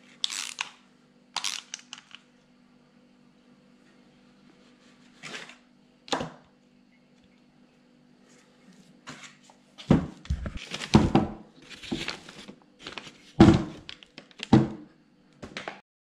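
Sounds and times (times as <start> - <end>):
faint steady hum: 0.0 - 15.6
paper crinkling: 10.3 - 11.0, 11.6 - 14.5.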